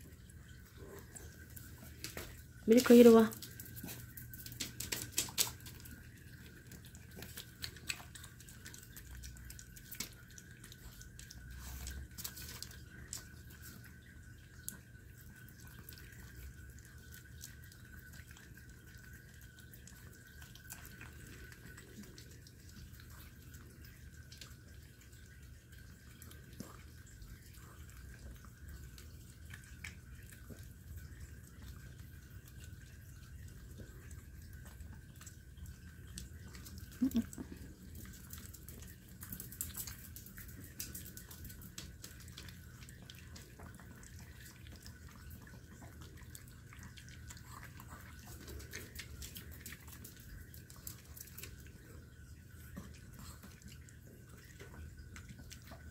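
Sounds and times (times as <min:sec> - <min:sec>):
dog licking and chewing: 0:00.0 - 0:55.9
low steady hum: 0:00.0 - 0:55.9
wet smacking and clicks: 0:03.7 - 0:13.3.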